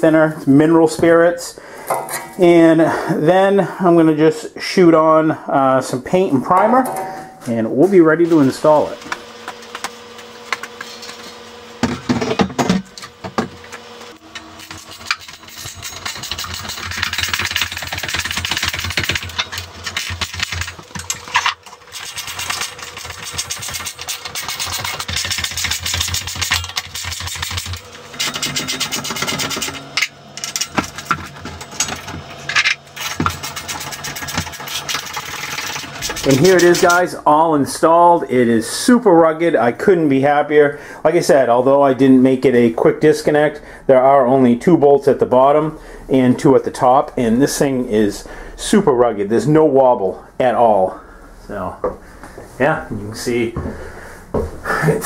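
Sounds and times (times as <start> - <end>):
power tool running: 8.2 - 37.2.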